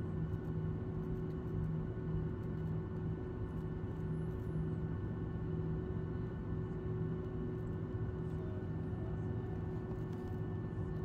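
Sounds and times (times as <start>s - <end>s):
jet engines idling hum: 3.7s - 11.0s.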